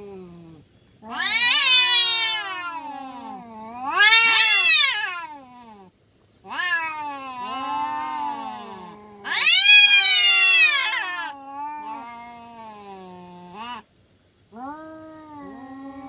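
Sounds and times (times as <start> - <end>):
cats yowling: 0.0 - 13.9, 14.5 - 16.0.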